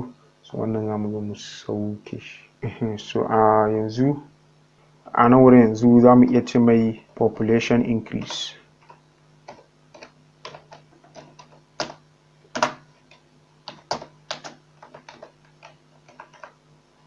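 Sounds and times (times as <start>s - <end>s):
faint steady low hum: 0.0s - 17.0s
keyboard keys clicking: 8.2s - 16.6s.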